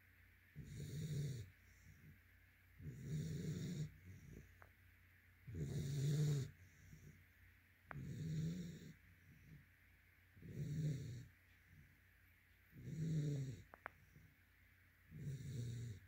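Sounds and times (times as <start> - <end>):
puppy snoring: 0.6 - 2.2, 2.8 - 4.7, 5.4 - 7.2, 7.9 - 9.6, 10.4 - 11.8, 12.7 - 14.3, 15.1 - 16.0.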